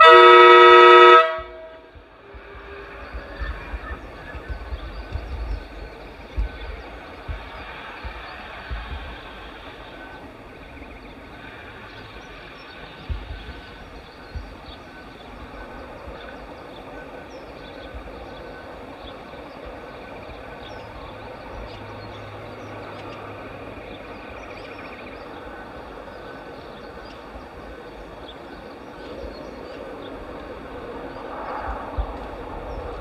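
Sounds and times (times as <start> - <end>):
electric locomotive hum and hiss: 0.0 - 33.0
low bumps: 1.3 - 16.9.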